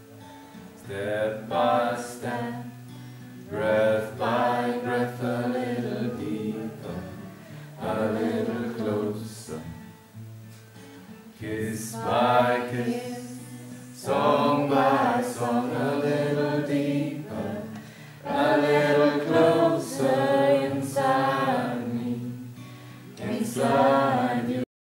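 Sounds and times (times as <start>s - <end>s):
strummed acoustic guitar: 0.0s - 24.6s
man singing: 11.4s - 15.8s.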